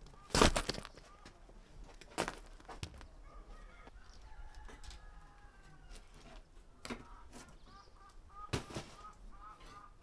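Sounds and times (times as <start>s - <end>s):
chickens clucking: 3.1s - 10.0s.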